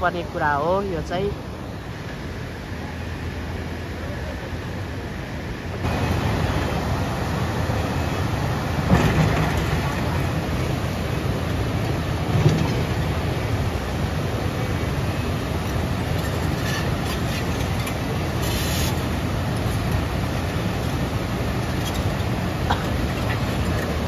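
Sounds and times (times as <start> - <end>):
fast river rushing: 0.0 - 24.0
tracked excavator running: 5.8 - 24.0.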